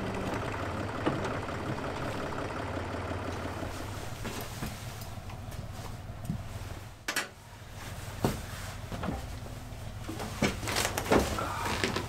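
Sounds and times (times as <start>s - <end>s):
low hum: 0.0s - 8.1s.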